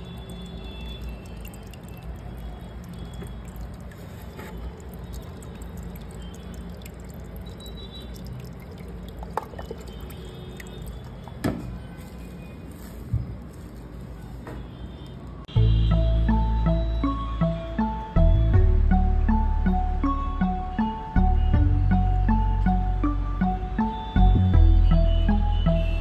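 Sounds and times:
small drips and clicks: 0.0s - 12.4s
aquarium water trickling and bubbling: 0.0s - 13.9s.

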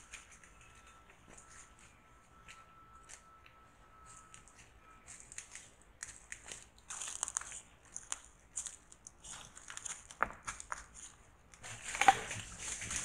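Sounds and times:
animals feeding rustling: 4.4s - 13.0s
crunching in dry leaf litter: 4.4s - 13.0s.

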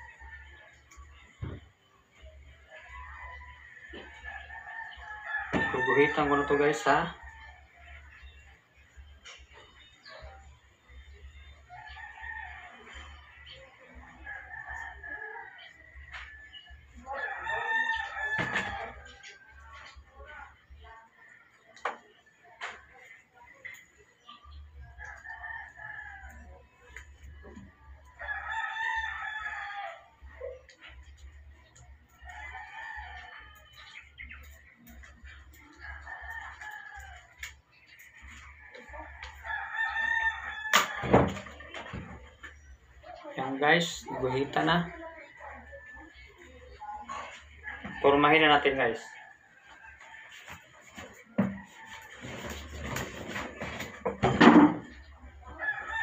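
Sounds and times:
rooster crowing: 2.8s - 7.6s, 17.0s - 19.2s, 28.2s - 30.1s, 38.7s - 42.1s, 55.5s - 56.0s.

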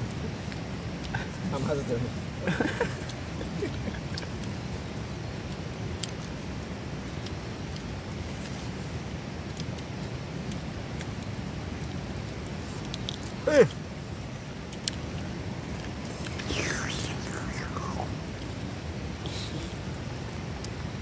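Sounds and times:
low background rumble: 11.3s - 21.0s
mouth or handling sound: 15.8s - 18.4s, 19.2s - 19.9s.

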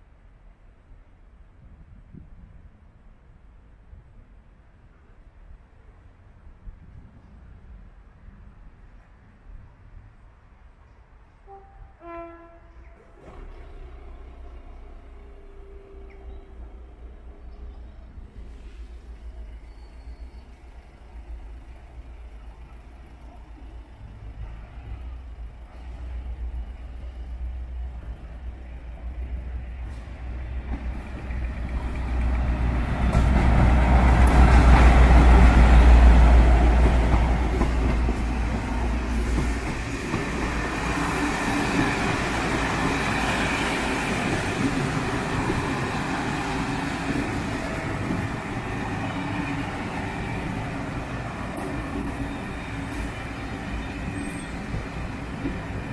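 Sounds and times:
diesel locomotive engine rumble: 0.0s - 55.9s
train wheels clattering on rails: 27.9s - 55.9s.

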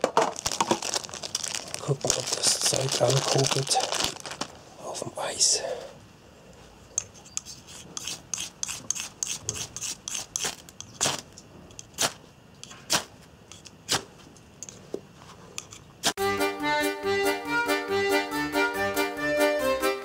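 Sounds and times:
striker scraping fire steel rod: 7.0s - 11.2s.

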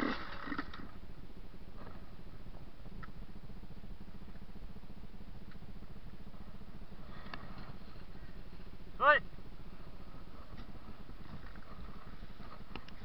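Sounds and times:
dirt bike engine idling: 0.0s - 13.0s
faint clicks: 12.5s - 13.0s.

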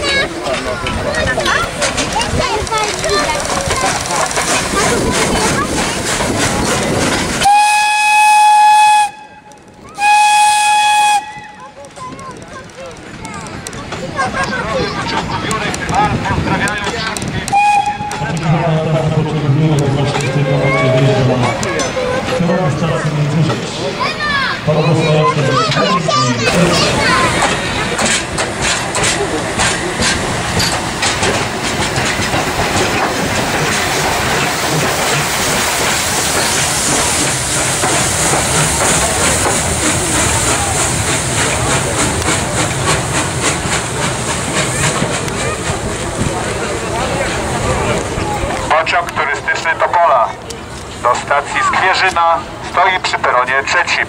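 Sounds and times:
train wheels clicking over rail joints: 0.0s - 22.8s, 25.5s - 54.0s
steam hissing: 0.9s - 9.2s, 26.1s - 49.8s
steam locomotive whistle blasts: 7.4s - 9.4s, 10.0s - 11.6s, 17.5s - 18.2s
loud rushing noise: 18.1s - 50.0s.

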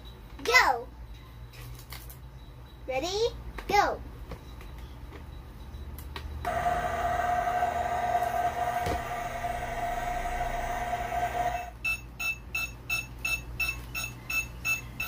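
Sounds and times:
toy microwave humming tone: 5.6s - 15.0s
short electronic beeps: 11.6s - 14.8s.

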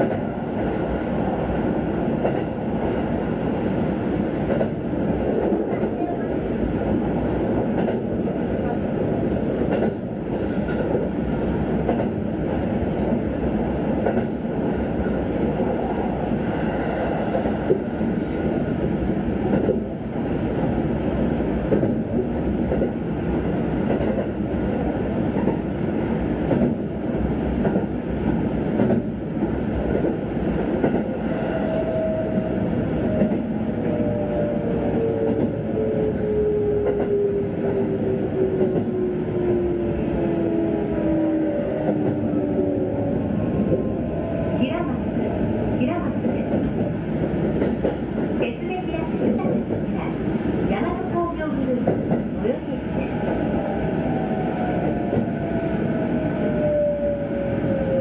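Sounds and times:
rail joint clacks: 0.0s - 0.7s, 2.1s - 3.0s, 4.4s - 6.5s, 7.5s - 8.8s, 9.6s - 13.2s, 13.9s - 15.2s, 17.3s - 19.9s, 21.7s - 24.7s, 25.3s - 25.7s, 26.4s - 26.8s, 27.6s - 32.5s, 33.1s - 39.7s, 41.8s - 43.9s, 44.8s - 53.8s
train wheels rumbling on rails: 0.0s - 58.0s.

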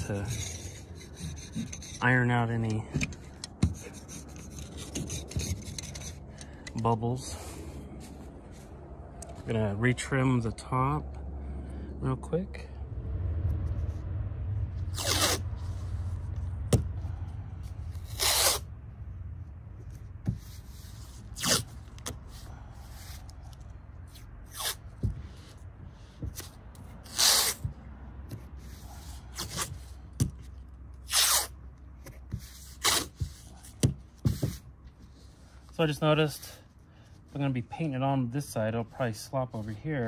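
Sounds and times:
masking tape ripping: 14.9s - 15.5s, 18.0s - 18.7s, 21.3s - 22.2s, 24.4s - 25.0s, 26.4s - 27.7s, 31.0s - 31.6s, 32.7s - 33.2s.

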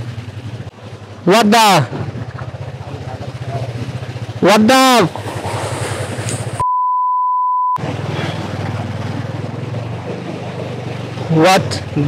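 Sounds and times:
motorcycle engine running: 0.0s - 6.6s, 7.8s - 12.0s
road and wind noise: 0.0s - 6.6s, 7.8s - 12.0s
high censor bleep: 6.6s - 7.8s.

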